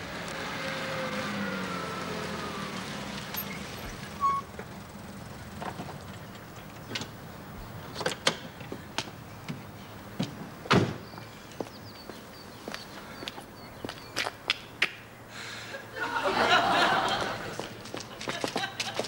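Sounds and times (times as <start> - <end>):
car engine: 0.0 - 10.7
car door slam: 10.7 - 11.1.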